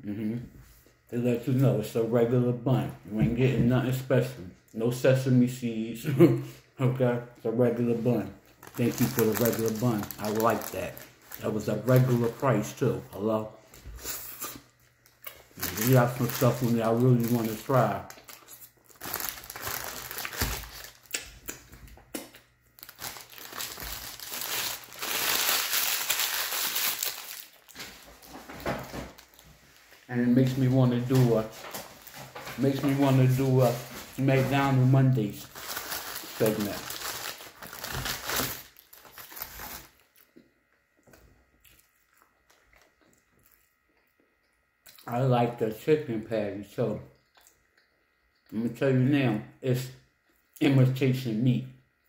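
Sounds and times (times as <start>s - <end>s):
paper wrapper crinkling: 8.5s - 12.8s, 15.4s - 21.2s, 22.8s - 40.0s
faint chewing: 40.0s - 45.1s, 47.1s - 48.6s.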